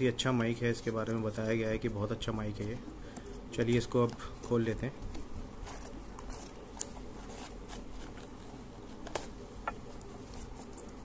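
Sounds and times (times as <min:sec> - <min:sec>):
cardboard rustling: 0:03.7 - 0:11.0.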